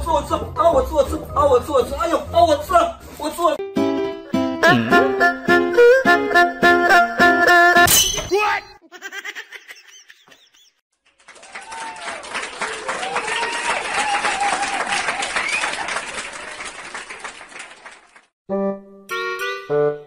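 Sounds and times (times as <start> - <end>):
crowd clapping: 11.0 - 18.3
crowd cheering: 11.1 - 18.3.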